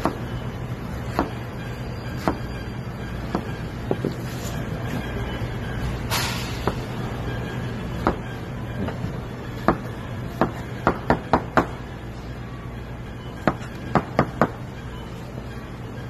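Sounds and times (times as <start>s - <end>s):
knife chopping on cutting board: 1.1s - 1.4s.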